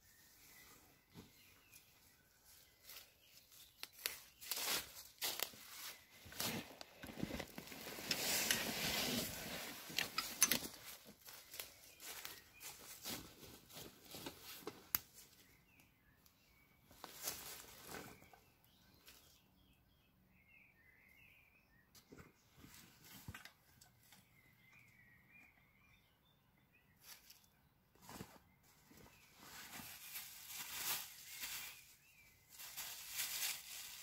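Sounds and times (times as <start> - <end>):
faint bird chirps: 0.0 - 5.0, 9.6 - 14.6, 15.2 - 34.0
fabric and bags rustling: 4.5 - 14.6.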